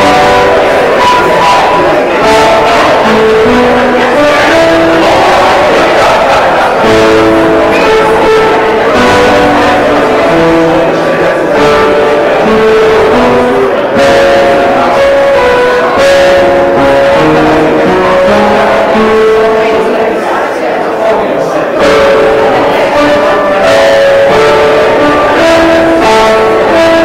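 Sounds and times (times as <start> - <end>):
slow instrumental music: 0.0 - 27.0.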